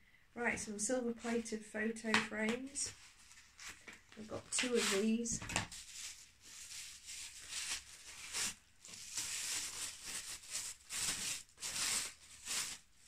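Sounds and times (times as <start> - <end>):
packaging rustling and tearing: 3.0 - 13.0.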